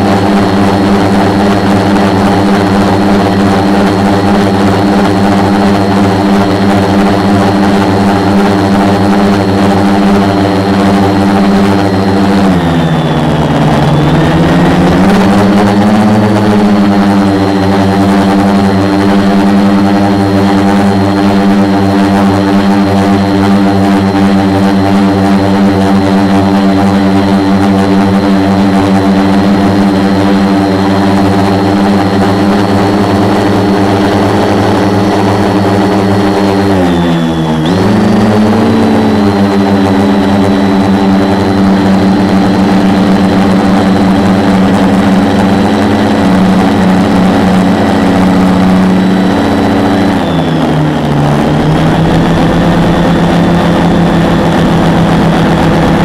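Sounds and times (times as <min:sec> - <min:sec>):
quadcopter motors humming: 0:00.0 - 0:56.0.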